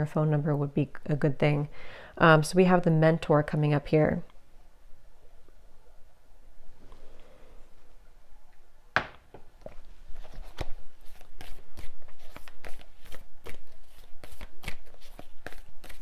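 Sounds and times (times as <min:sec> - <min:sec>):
cards shuffled slapping: 0:10.2 - 0:16.0.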